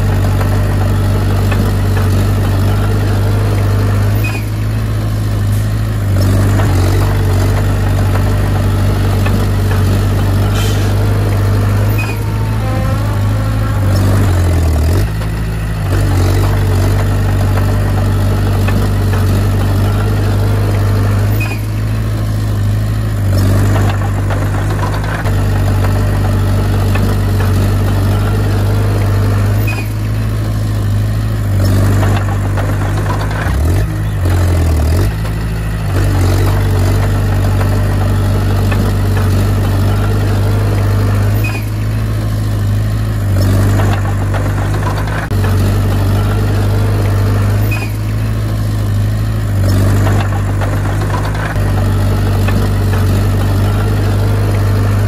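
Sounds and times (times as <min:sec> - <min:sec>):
bulldozer diesel engine running: 0:00.0 - 0:55.0.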